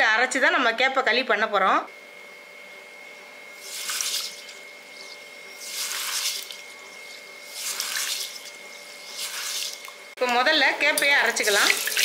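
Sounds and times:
hand swishing grains in water: 3.6 - 4.6, 5.6 - 6.6, 7.5 - 9.8.

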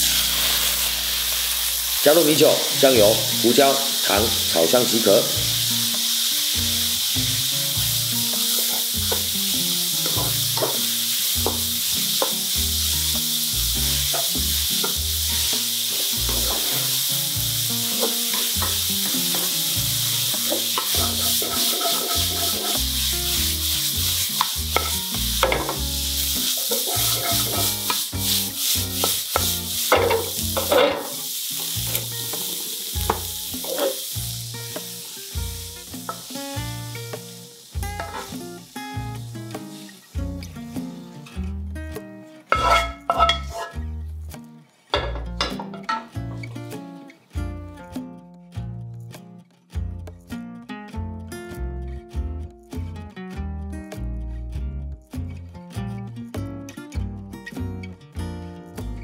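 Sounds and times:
radish sizzling in hot oil: 0.0 - 41.2, 42.4 - 46.8
wooden spatula scraping wok: 15.9 - 17.0, 20.5 - 22.8, 26.5 - 34.0, 42.5 - 43.8.

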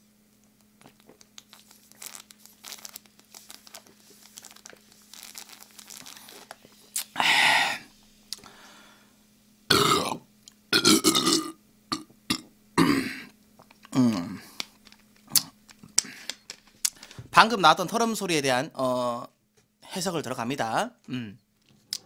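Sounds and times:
man burping loudly: 9.7 - 13.3, 13.9 - 14.4
man gulping drink: 9.7 - 17.0.

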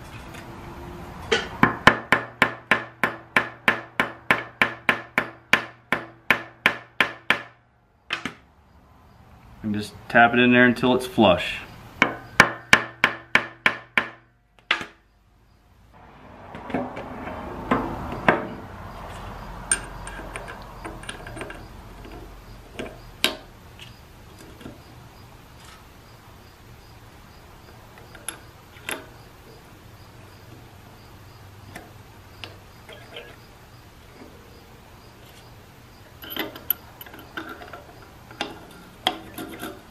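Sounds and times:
small metal parts clinking: 18.5 - 23.0, 27.7 - 29.2, 36.0 - 39.9.

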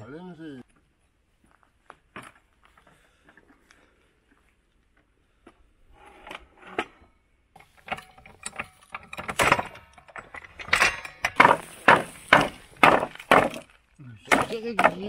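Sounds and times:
wooden knocks and cracks: 7.8 - 15.0.

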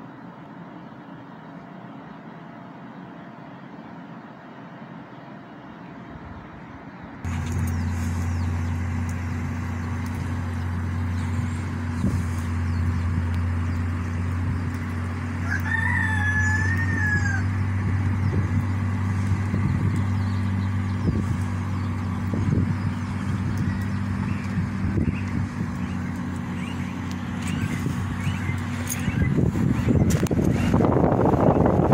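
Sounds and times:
air conditioner unit humming: 0.0 - 31.9
rooster crowing: 15.3 - 18.0.

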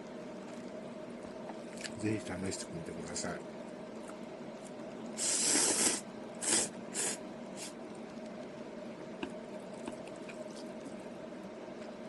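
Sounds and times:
person slurping noodles: 5.2 - 7.7.

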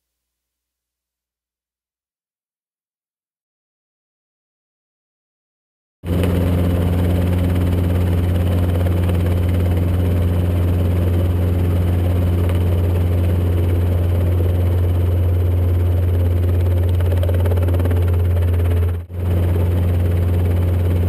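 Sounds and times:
helicopter engine and rotor drone: 6.1 - 21.0.

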